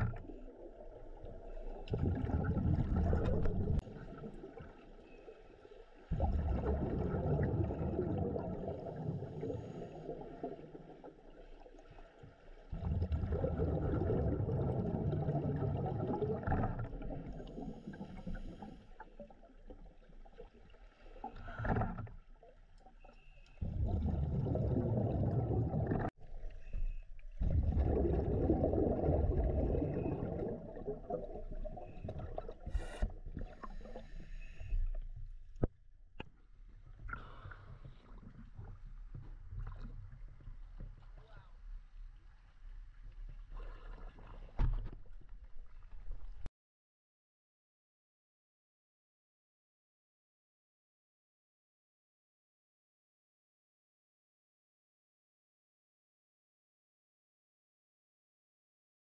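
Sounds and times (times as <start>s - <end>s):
underwater exhaled bubbles: 0.0s - 5.3s, 6.0s - 35.7s.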